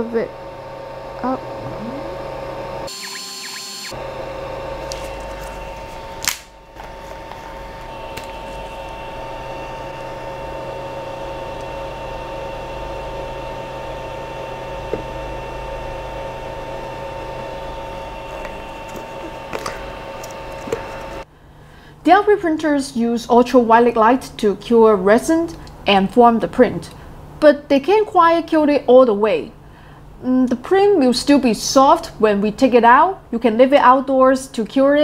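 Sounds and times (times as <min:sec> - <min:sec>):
low hum: 0:01.2 - 0:13.3.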